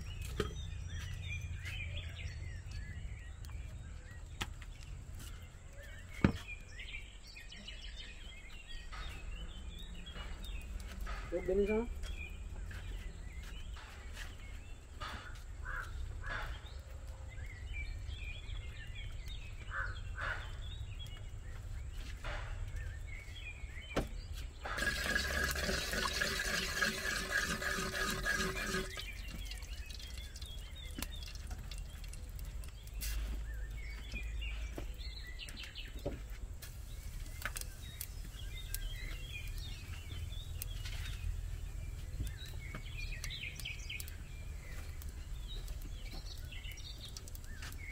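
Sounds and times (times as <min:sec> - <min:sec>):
birds chirping: 0:00.0 - 0:47.9
wooden spoon stirring in pot: 0:24.8 - 0:33.7.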